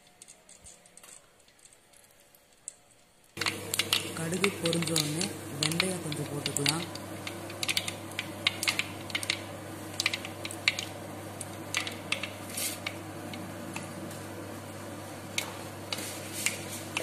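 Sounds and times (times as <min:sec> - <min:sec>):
seeds popping in hot oil: 0:00.0 - 0:17.0
seeds hissing in oil: 0:10.9 - 0:13.3, 0:14.9 - 0:17.0.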